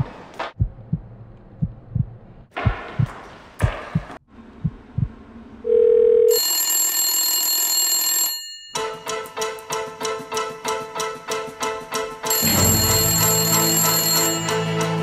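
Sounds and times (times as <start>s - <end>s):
heartbeat thumps: 0.0s - 5.2s
telephone ringing: 5.7s - 9.0s, 12.3s - 15.0s
music: 8.8s - 15.0s.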